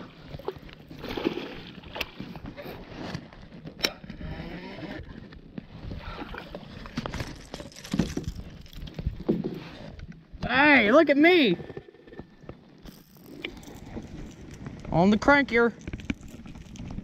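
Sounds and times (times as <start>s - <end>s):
water lapping against hull: 0.0s - 3.0s, 5.7s - 7.1s
gear knocks and clicks: 15.7s - 17.0s.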